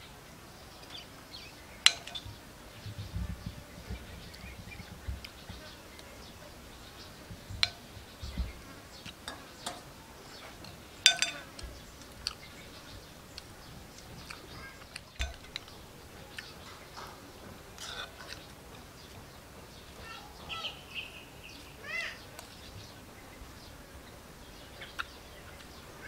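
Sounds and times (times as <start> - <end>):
spoon clinking against plate: 1.9 - 2.3, 7.6 - 8.0, 9.1 - 10.0, 10.6 - 12.4, 15.1 - 15.9.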